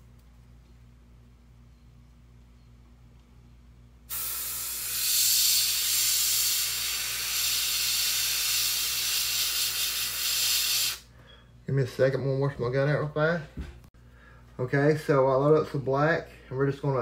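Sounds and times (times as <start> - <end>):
airbrush hissing: 4.1 - 11.1.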